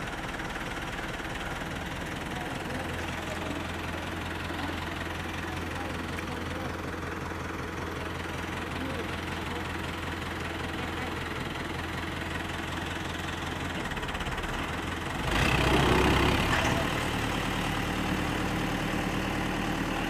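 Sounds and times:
tractor diesel engine revving: 0:00.0 - 0:20.0.

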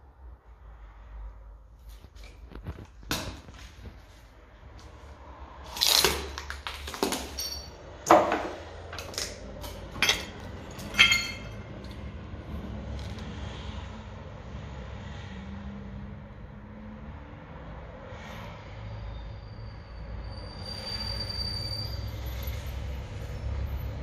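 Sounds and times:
debris clinking underfoot: 0:06.5 - 0:12.0.

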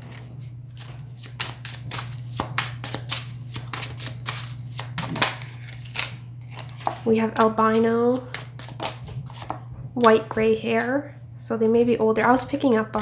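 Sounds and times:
steady low hum: 0:00.0 - 0:13.0
cards being shuffled: 0:00.2 - 0:09.6.

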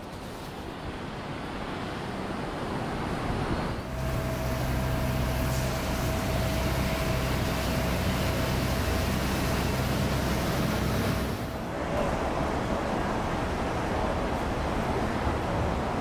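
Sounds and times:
road traffic noise: 0:03.4 - 0:16.0
thin steady whine: 0:03.8 - 0:11.6.

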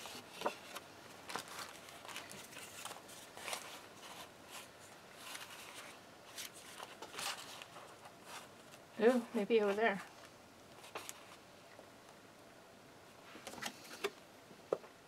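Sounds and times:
paper rustling: 0:00.0 - 0:11.4.

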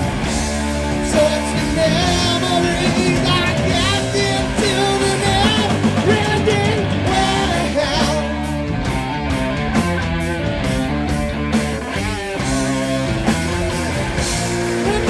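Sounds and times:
distorted electric guitar: 0:00.0 - 0:15.0
drums: 0:00.0 - 0:15.0
man singing: 0:01.0 - 0:08.6, 0:14.8 - 0:15.0.

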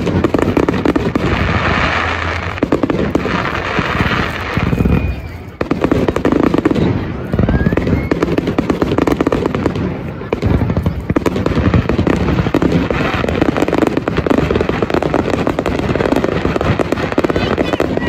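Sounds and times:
fireworks bangs: 0:00.0 - 0:18.0
fireworks crackling and popping: 0:00.0 - 0:18.0
faint whistling glide: 0:04.3 - 0:05.7, 0:07.2 - 0:08.5.

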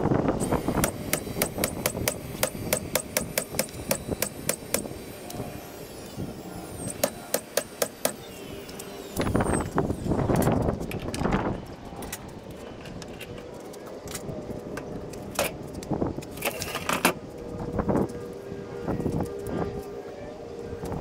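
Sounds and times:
loud noisy sound: 0:00.0 - 0:21.0
nail gun firing: 0:00.4 - 0:04.9, 0:06.9 - 0:08.2.

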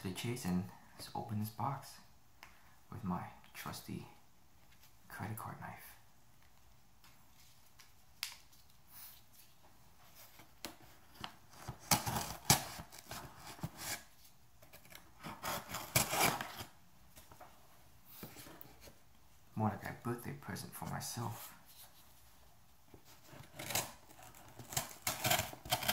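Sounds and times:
knife cutting packing tape: 0:11.7 - 0:14.0, 0:14.8 - 0:16.7, 0:23.4 - 0:25.9.

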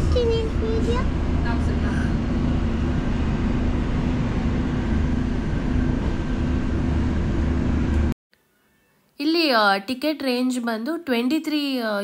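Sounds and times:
constant low hum: 0:00.0 - 0:08.2.

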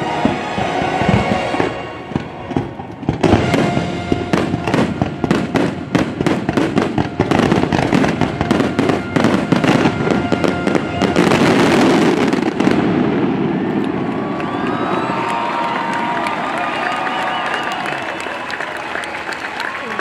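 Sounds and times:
show music: 0:00.0 - 0:12.7
fireworks bangs and crackles: 0:00.0 - 0:17.8.

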